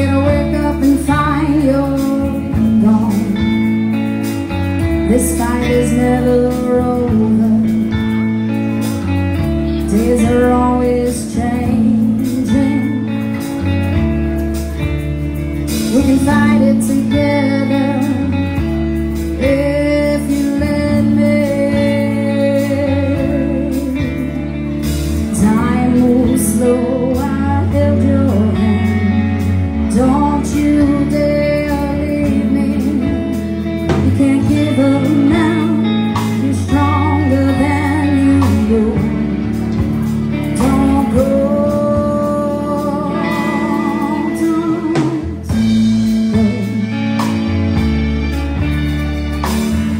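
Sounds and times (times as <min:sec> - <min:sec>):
woman singing: 0:00.0 - 0:15.0, 0:15.6 - 0:47.8
drum kit: 0:00.0 - 0:49.9
electric bass: 0:00.0 - 0:49.9
electric guitar: 0:00.0 - 0:49.9.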